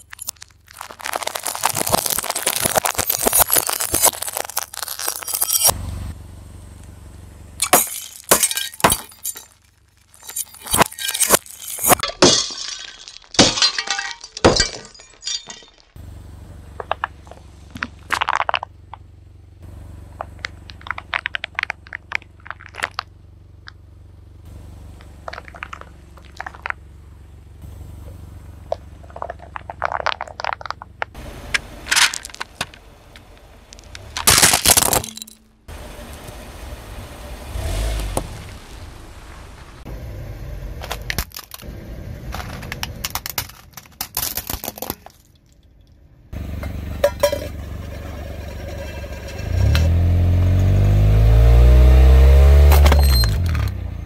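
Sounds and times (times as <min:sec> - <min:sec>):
glass tubes shattering: 0:00.0 - 0:05.8, 0:07.6 - 0:16.0, 0:31.9 - 0:32.7, 0:34.0 - 0:35.6, 0:46.4 - 0:50.8, 0:52.4 - 0:53.8
car engine running: 0:00.0 - 0:12.0, 0:15.9 - 0:44.0, 0:46.0 - 0:54.0.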